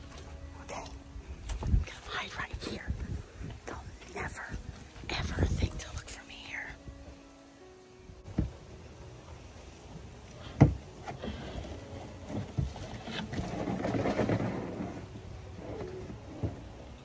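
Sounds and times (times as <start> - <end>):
trash can dragged over ground: 10.6 - 17.0.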